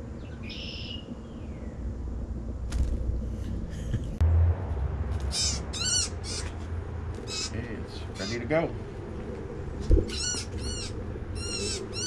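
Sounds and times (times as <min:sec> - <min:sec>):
birds chirping: 0:00.0 - 0:02.0, 0:05.2 - 0:12.0.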